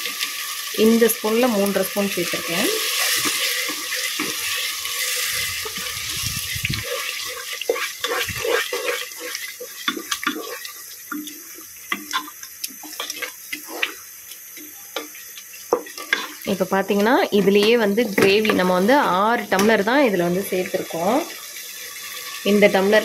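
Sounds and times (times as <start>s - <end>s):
pot hissing on stove: 0.0s - 23.0s
spoon stirring pot: 6.8s - 14.0s, 14.6s - 18.7s.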